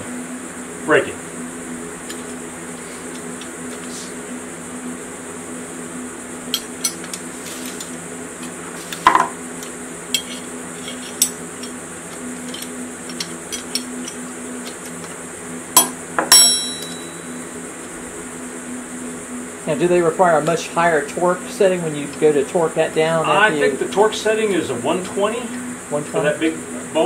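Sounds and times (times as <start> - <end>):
steady background hum: 0.0 - 27.0
steel tools clinking on metal: 10.2 - 11.8, 16.3 - 17.2.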